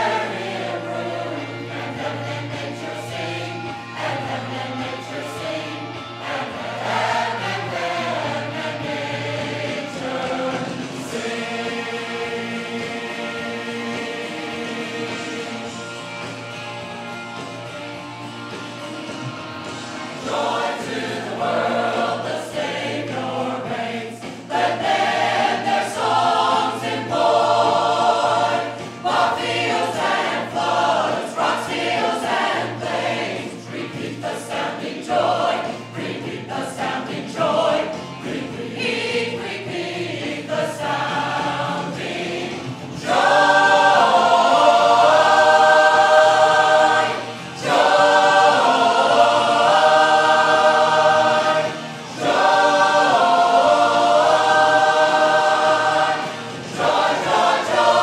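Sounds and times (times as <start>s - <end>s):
church choir singing: 0.0s - 58.0s.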